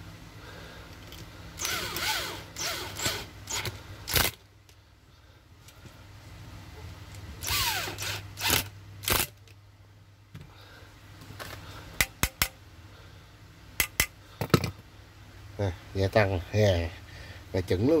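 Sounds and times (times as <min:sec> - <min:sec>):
cordless drill whirring: 0:01.6 - 0:04.4, 0:07.4 - 0:09.2.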